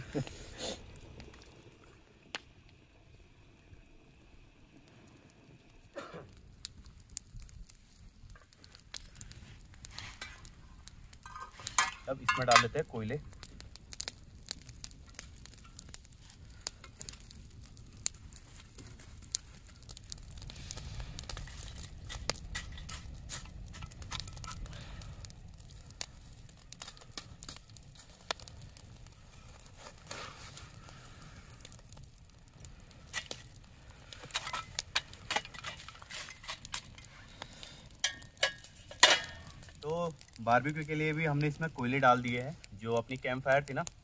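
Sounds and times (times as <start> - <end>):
fire crackling: 0.0 - 44.0
coals clinking in metal pan: 9.1 - 13.2, 18.8 - 25.7, 33.1 - 43.8.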